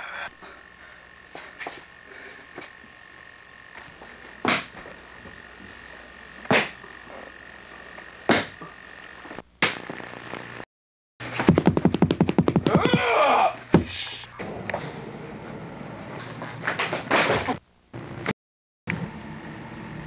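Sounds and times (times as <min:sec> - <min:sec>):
faint steady hum: 0:00.0 - 0:10.6
rapid knocking rattle: 0:11.5 - 0:13.0.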